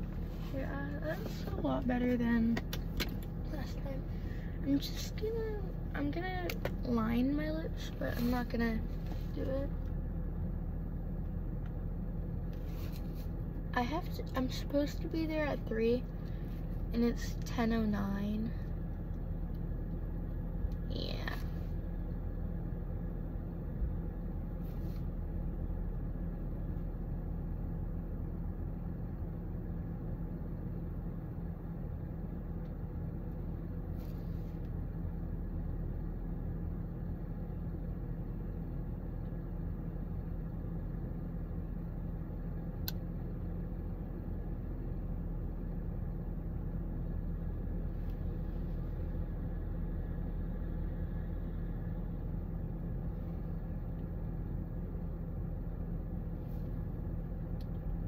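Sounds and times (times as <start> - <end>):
car engine idling: 0.0 - 58.0
faint rustles: 12.4 - 13.5
light click: 42.8 - 43.0.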